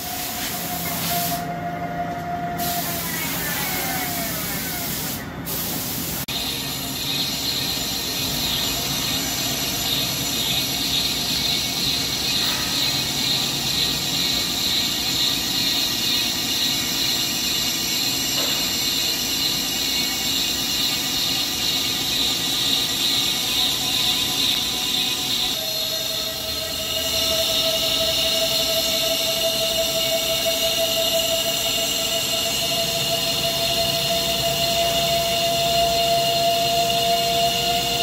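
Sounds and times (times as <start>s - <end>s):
lathe cutting metal hiss and squeal: 0.0s - 38.0s
low machine hum: 6.1s - 38.0s
steady whine: 6.2s - 38.0s.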